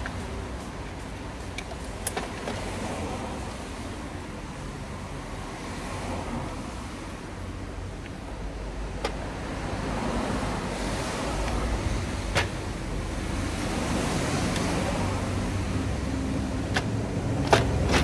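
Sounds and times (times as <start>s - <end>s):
steady noise: 0.0s - 7.6s
clicks of car parts handled: 1.6s - 2.6s, 9.0s - 9.2s.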